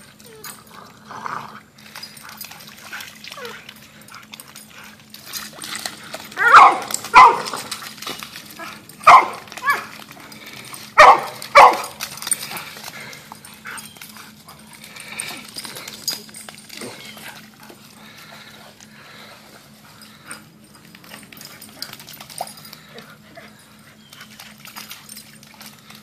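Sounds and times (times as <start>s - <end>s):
dog barking: 6.4s - 7.6s, 9.0s - 9.8s, 11.0s - 12.0s.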